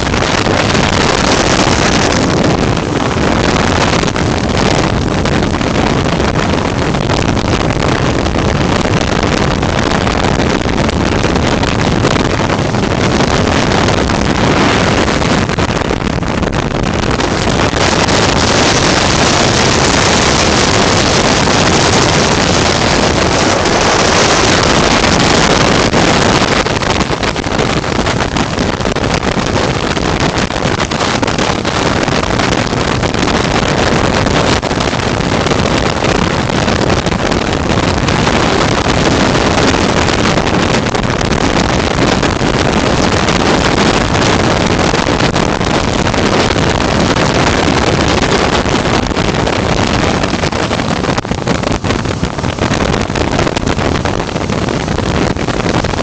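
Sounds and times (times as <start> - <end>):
aircraft engine drone: 0.0 - 7.4, 9.7 - 29.8
wind rushing over microphone: 0.0 - 56.0.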